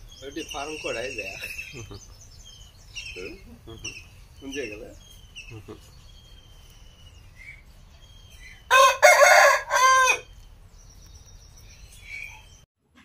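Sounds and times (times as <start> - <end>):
rooster crowing: 8.6 - 10.3.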